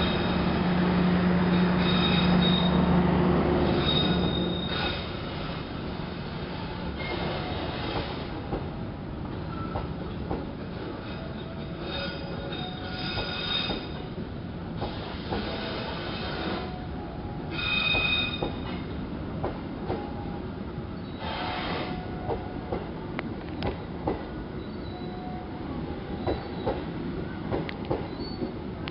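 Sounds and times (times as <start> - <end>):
train coaches rumbling: 0.0 - 28.9
high-pitched wheel flange squeal: 1.5 - 2.9, 3.6 - 5.3, 11.0 - 14.1, 17.5 - 18.8, 24.6 - 25.5.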